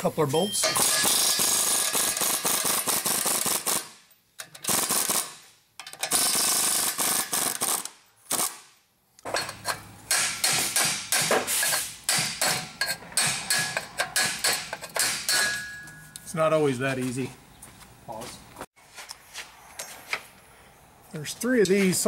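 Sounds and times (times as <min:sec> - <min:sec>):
impact wrench hammering bolts: 0:00.6 - 0:03.8, 0:04.4 - 0:08.5, 0:09.2 - 0:16.1.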